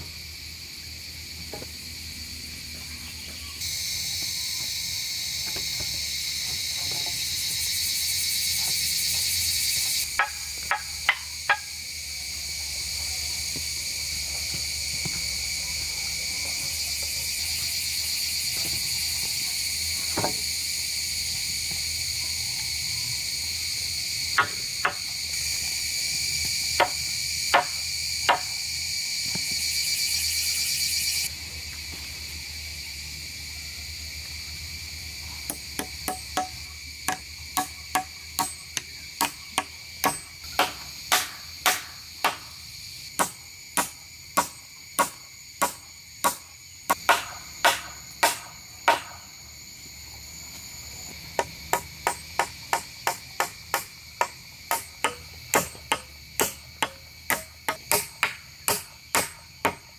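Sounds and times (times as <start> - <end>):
insects chirping: 0.0 - 59.9
hand tool strikes: 10.2 - 11.7, 35.5 - 42.5, 43.2 - 49.2, 51.4 - 59.9.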